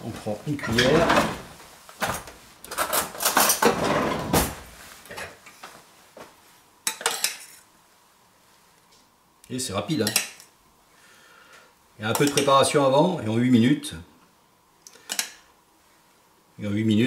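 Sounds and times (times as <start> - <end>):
spoon and saucepan clattering: 6.9 - 7.6, 10.0 - 10.4.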